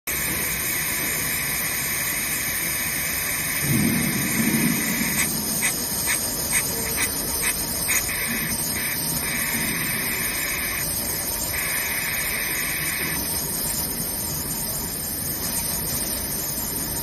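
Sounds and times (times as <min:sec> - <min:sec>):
machine steady hiss: 0:00.1 - 0:17.0
low rumble: 0:03.6 - 0:06.4.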